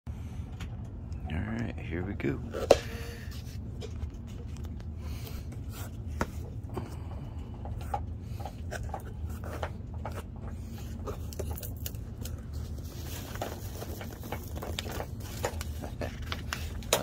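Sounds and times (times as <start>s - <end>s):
packing peanuts and bubble wrap rustling: 10.9s - 17.0s.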